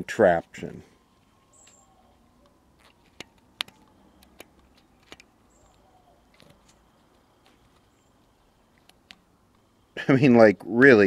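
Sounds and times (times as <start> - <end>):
faint clicks and ticks: 2.4 - 9.7.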